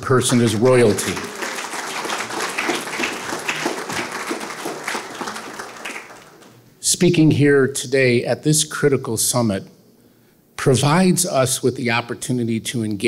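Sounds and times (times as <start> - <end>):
audience applauding: 0.1 - 6.7.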